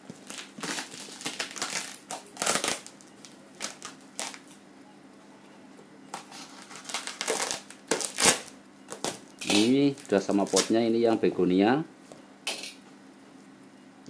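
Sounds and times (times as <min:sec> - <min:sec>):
wrapping rustling: 0:06.3 - 0:10.9.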